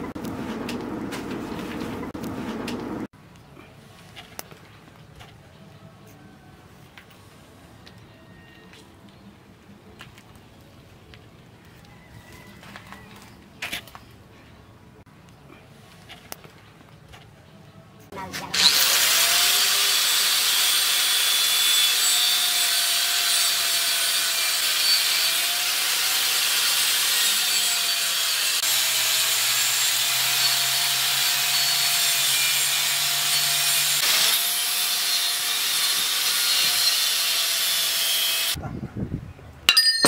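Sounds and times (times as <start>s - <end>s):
angle grinder cutting steel: 18.5s - 38.6s
short metallic clink: 39.7s - 40.0s.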